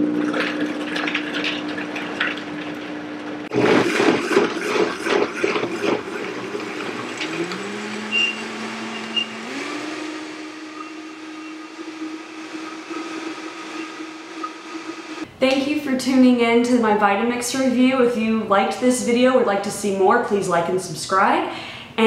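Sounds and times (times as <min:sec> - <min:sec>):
blender motor running: 0:03.6 - 0:15.3.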